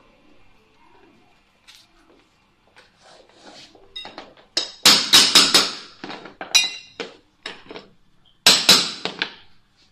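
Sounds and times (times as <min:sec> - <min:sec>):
hammer striking steel bar: 0:04.6 - 0:06.0, 0:08.5 - 0:09.3.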